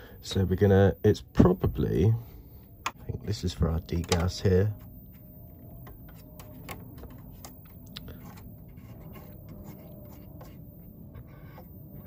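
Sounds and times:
fingers handling wires: 3.9s - 11.8s.

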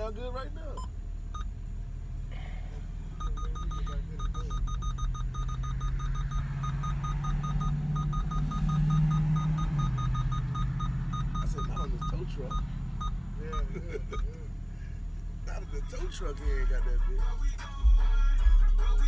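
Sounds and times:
fast repeating high beep: 3.2s - 13.7s
bass-heavy electronic music: 15.5s - 19.0s.

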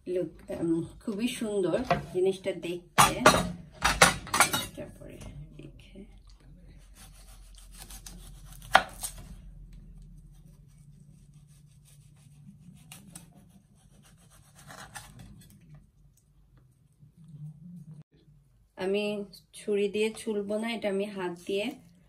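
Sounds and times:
knife cutting fruit skin: 6.8s - 15.6s.

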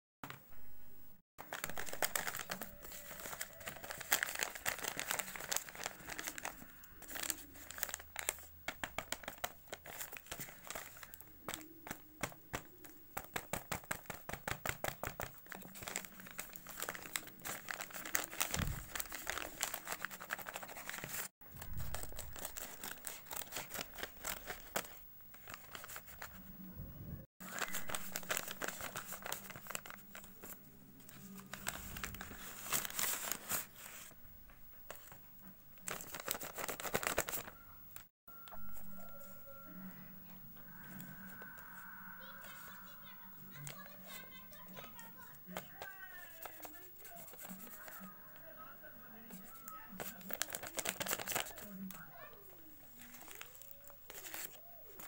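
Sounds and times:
paper crinkling and rustling: 1.4s - 26.5s, 27.4s - 34.2s, 34.8s - 39.3s, 42.4s - 55.0s
paper tearing: 15.4s - 26.4s, 27.4s - 30.5s, 31.2s - 34.1s, 49.3s - 52.2s, 52.9s - 55.0s.

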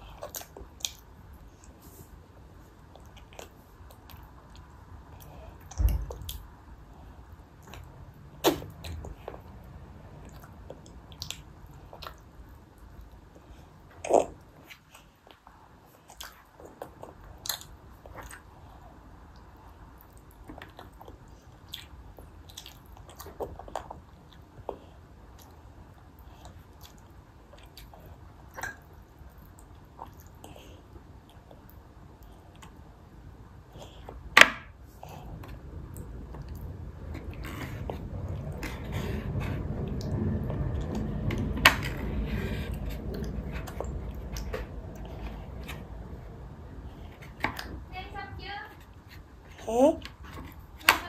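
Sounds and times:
toddler chewing and lip smacking: 0.0s - 1.8s, 2.8s - 6.5s, 14.0s - 25.6s
low rumble: 35.0s - 48.4s.

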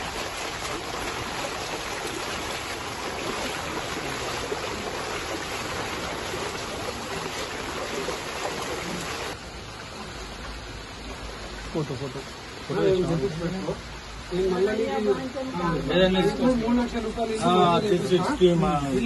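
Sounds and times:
rain and running floodwater: 0.0s - 19.0s.

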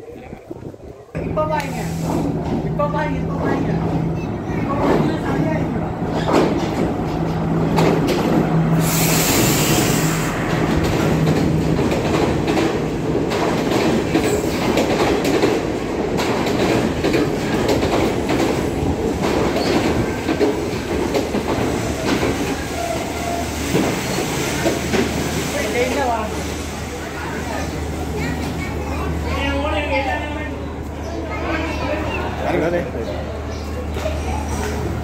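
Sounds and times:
train carriages rumbling past: 0.0s - 35.0s
train engine humming: 0.0s - 35.0s
brief hiss: 8.8s - 10.4s.

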